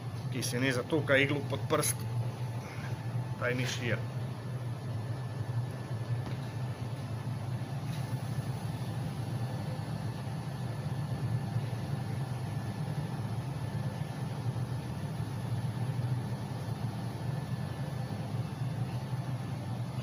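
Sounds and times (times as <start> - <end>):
low mechanical hum: 0.0 - 20.0.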